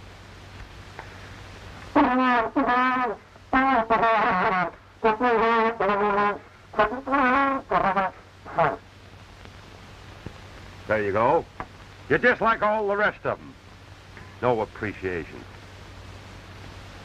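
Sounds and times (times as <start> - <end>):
solo trombone tune: 1.9 - 8.8.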